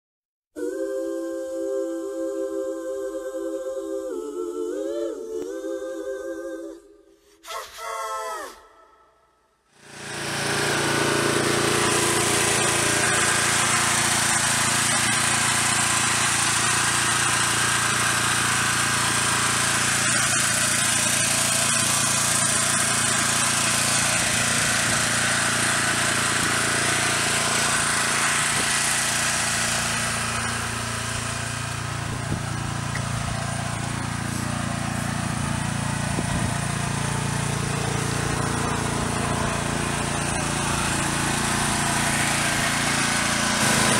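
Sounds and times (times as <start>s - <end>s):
small engine humming: 9.7s - 43.9s.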